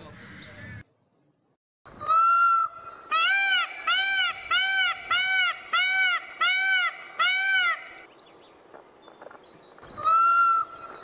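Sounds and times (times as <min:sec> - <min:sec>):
peafowl calling: 0:01.9 - 0:08.1, 0:09.8 - 0:11.0.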